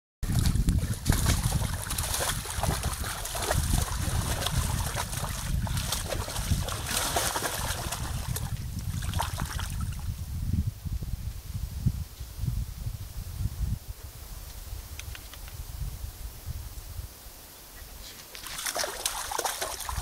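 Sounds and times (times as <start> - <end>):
dog splashing water in pool: 0.2 - 9.8, 18.4 - 20.0
wind rumble on microphone: 0.2 - 20.0.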